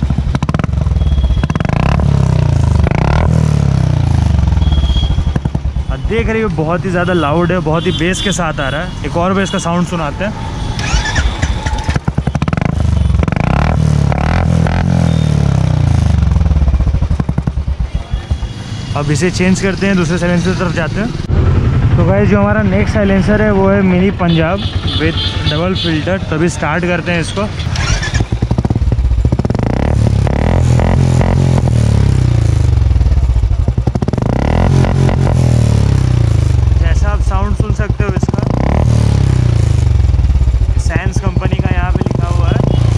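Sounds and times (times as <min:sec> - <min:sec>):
motorcycle engine revving: 0:00.0 - 0:08.0, 0:08.7 - 0:42.9.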